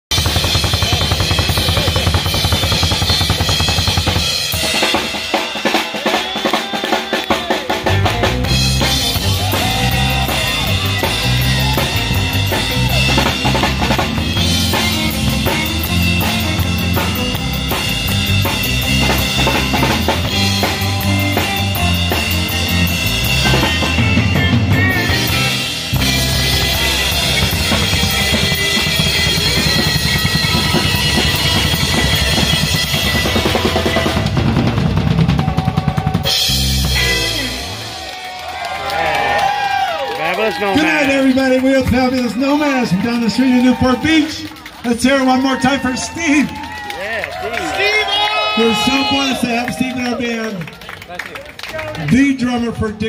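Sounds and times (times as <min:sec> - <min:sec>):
drum kit: 0:00.0 - 0:40.0
electric guitar: 0:00.1 - 0:40.2
live band playing: 0:00.1 - 0:53.0
electric bass: 0:07.7 - 0:39.9.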